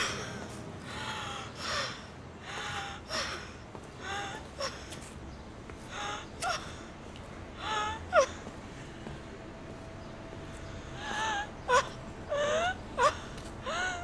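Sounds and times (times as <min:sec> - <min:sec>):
woman sobbing: 0:11.0 - 0:14.0.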